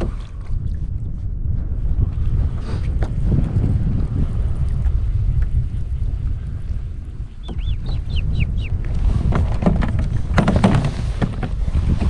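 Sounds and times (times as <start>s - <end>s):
wind buffeting microphone: 0.0s - 12.0s
bird chirping: 7.4s - 8.8s.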